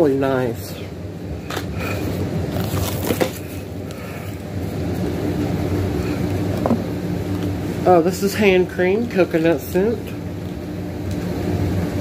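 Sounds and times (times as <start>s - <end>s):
steady low hum: 0.0s - 12.0s
packaged items clicking and rustling: 2.6s - 3.5s.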